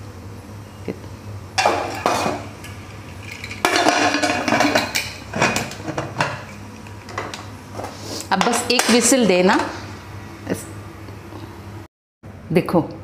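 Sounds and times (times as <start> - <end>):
pot lid clattering and scraping: 1.6 - 9.9.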